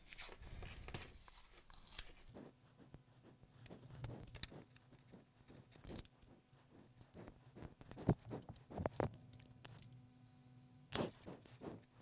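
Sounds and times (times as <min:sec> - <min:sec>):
crinkling and crackling of tape: 0:00.0 - 0:02.3.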